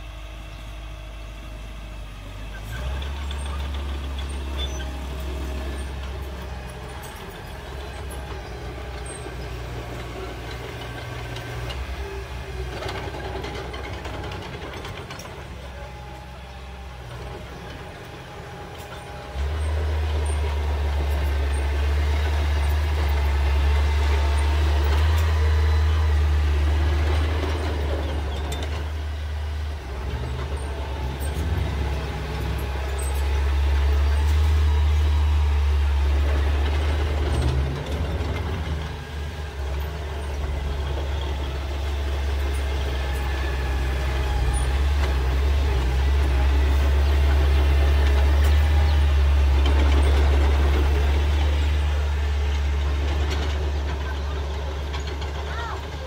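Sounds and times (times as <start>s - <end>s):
bulldozer diesel engine under load: 0.0s - 56.0s.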